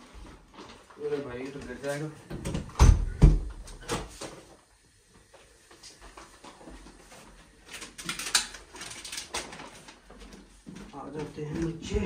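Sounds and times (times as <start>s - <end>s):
paper bag rustling: 6.2s - 11.4s.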